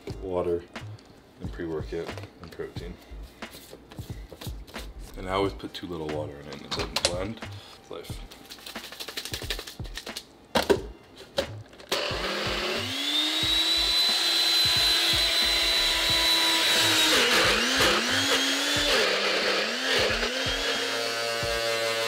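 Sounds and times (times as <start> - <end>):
blender motor whirring: 11.9 - 22.0.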